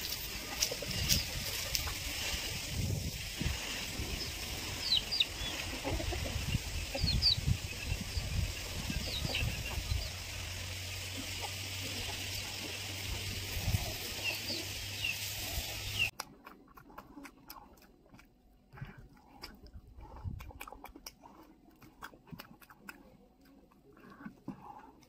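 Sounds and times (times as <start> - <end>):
outdoor hiss: 9.0 - 16.1
eating clicks: 16.1 - 25.0
person chewing and lip smacking: 16.1 - 25.0.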